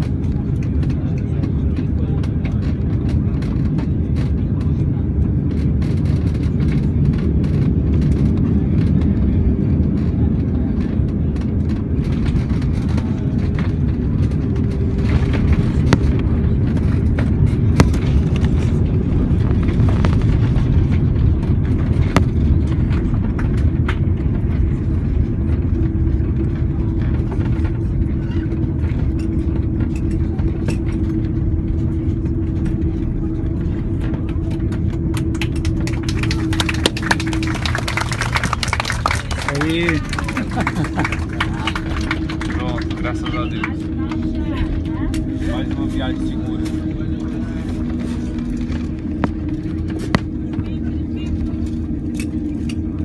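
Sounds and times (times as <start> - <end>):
jet engines and wheels rumbling: 0.0 - 53.0
steady hum: 0.0 - 53.0.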